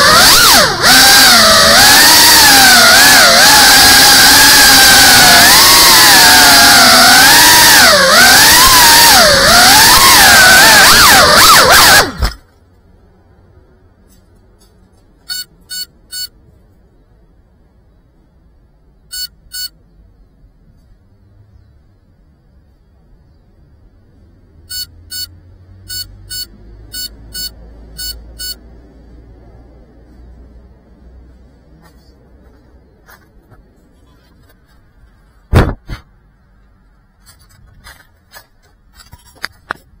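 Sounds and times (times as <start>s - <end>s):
drone motors whining: 0.0s - 12.5s
short electronic beeps: 15.2s - 16.4s, 19.1s - 19.8s, 24.6s - 28.7s
drone landing thump: 35.5s - 36.0s
light clicks and scrapes: 37.2s - 39.9s.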